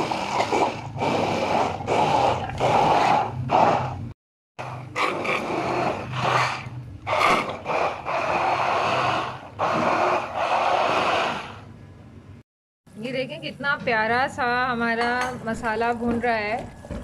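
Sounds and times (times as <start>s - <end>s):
hand blender motor running: 0.0s - 3.8s, 5.0s - 11.6s.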